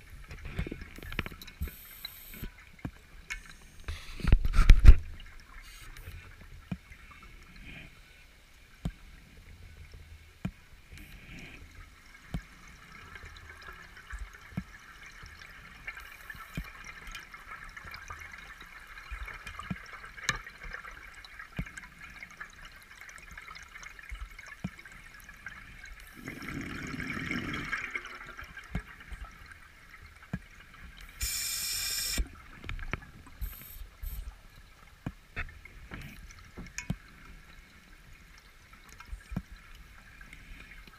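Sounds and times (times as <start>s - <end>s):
faint underwater hiss: 0.4s - 2.6s, 3.3s - 10.0s, 10.8s - 13.1s, 31.0s - 32.4s, 33.4s - 34.6s
bubbling: 16.5s - 34.2s
brief high hiss: 31.2s - 32.2s.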